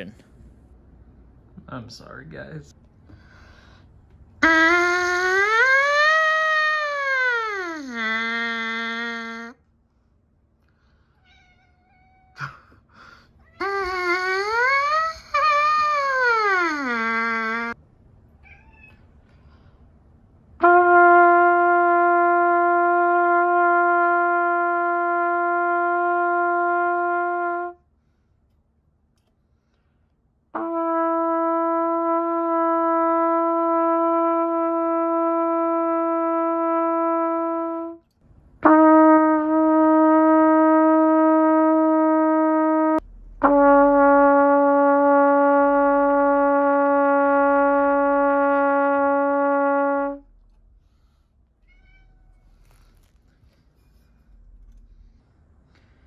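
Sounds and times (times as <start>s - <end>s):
trumpet long tones: 4.4s - 9.7s, 13.6s - 17.8s, 20.6s - 27.9s, 30.6s - 55.2s.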